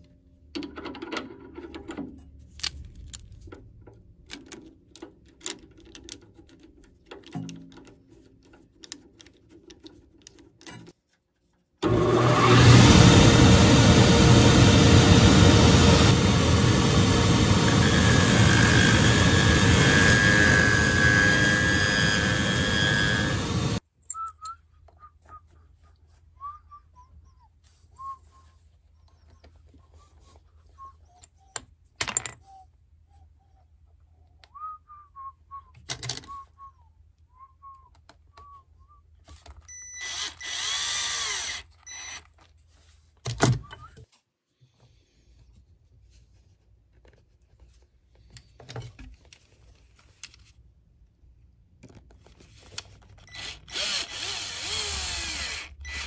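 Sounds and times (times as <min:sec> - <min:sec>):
loud shop machine running: 0:11.8 - 0:23.8
faint whistle-like chirps: 0:24.0 - 0:31.6, 0:32.4 - 0:39.9.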